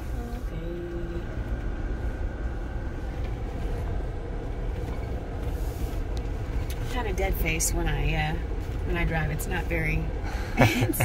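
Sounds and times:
engine low rumble: 0.0 - 11.0.

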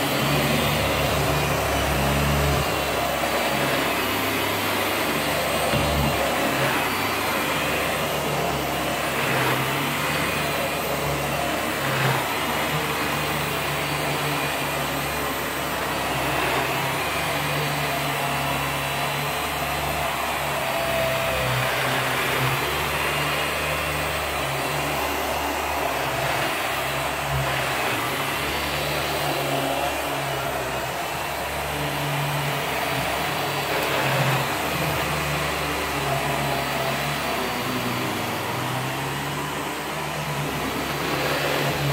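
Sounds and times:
vacuum cleaner running on carpet: 0.0 - 41.9.

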